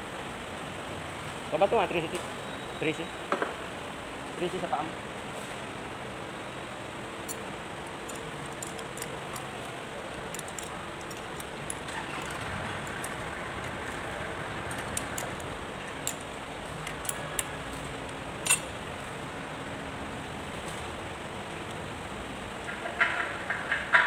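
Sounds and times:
metal tools clicking on engine: 0:07.2 - 0:18.9.

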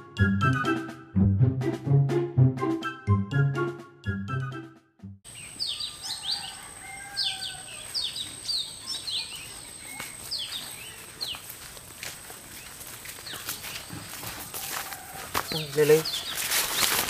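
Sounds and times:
background music: 0:00.0 - 0:05.2
birds chirping: 0:05.3 - 0:11.7, 0:12.4 - 0:14.3, 0:14.9 - 0:17.0.

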